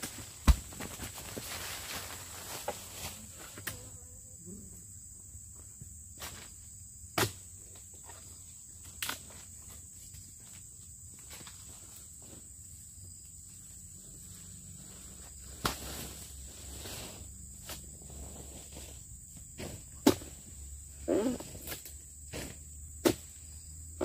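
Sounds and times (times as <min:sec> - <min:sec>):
chisel chopping palm fronds: 0:00.0 - 0:00.9, 0:07.2 - 0:07.4, 0:15.5 - 0:16.0, 0:19.6 - 0:20.4, 0:21.4 - 0:23.4
high insect chirr: 0:00.0 - 0:24.0.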